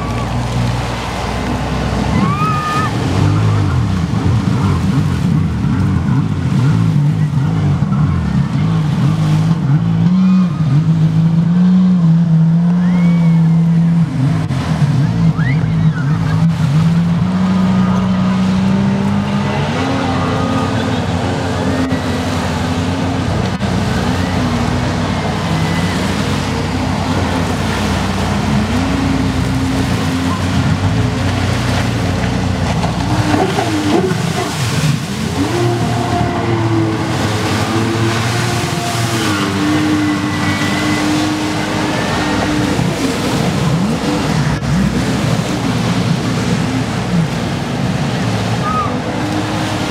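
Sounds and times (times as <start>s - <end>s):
jet ski engine revving: 0.0s - 49.9s
water spray rushing: 13.6s - 49.9s.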